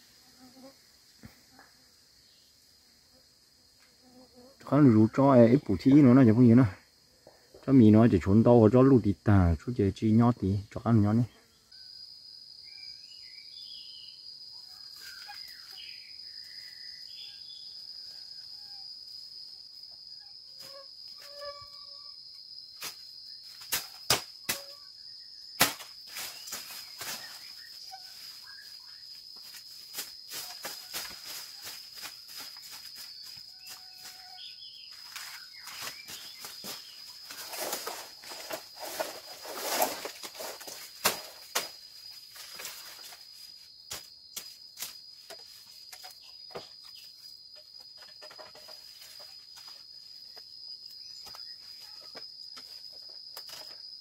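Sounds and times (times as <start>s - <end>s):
insects droning: 0.0s - 54.0s
machete knocks: 23.7s - 24.7s, 25.6s - 25.9s
rustling of stems and leaves: 26.0s - 54.0s.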